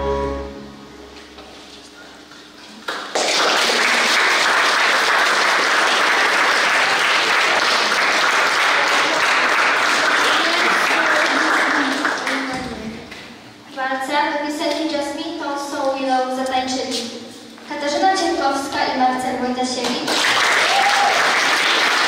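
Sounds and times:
audience applauding: 0:02.8 - 0:12.6, 0:20.0 - 0:22.0.

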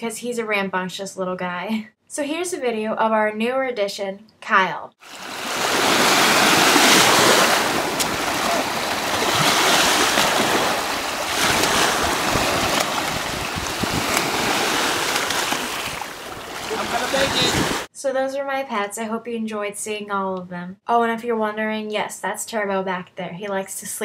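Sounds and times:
small waves on beach: 0:05.0 - 0:17.9.

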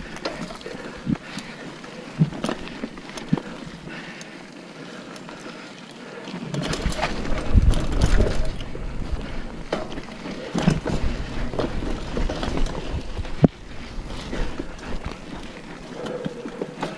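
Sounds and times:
bike rattling over bumps: 0:00.0 - 0:16.9
bike tyres on dirt: 0:00.0 - 0:16.9
wind on microphone: 0:06.7 - 0:09.7.

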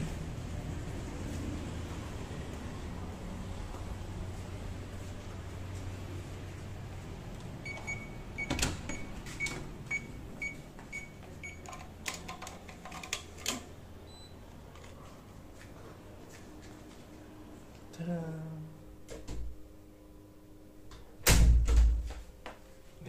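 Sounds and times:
keycard door lock beeping: 0:07.6 - 0:12.2.

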